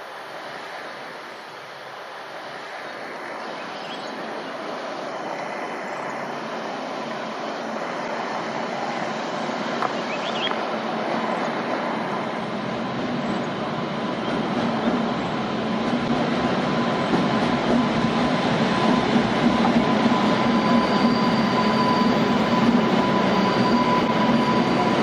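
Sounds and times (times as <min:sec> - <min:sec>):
wheels rumbling on rail: 0:02.6 - 0:25.0.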